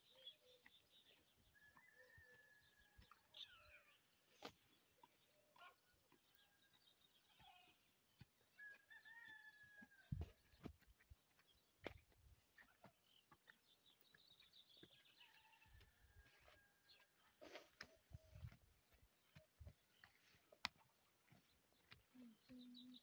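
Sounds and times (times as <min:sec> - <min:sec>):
small birds chirping: 0:00.0 - 0:23.0
distant rooster crowing: 0:01.5 - 0:03.5, 0:08.5 - 0:10.4, 0:15.2 - 0:17.1.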